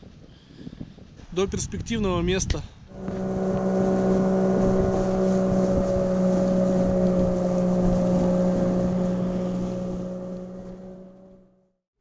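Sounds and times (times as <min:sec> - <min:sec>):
outboard motor running: 0:02.9 - 0:11.5.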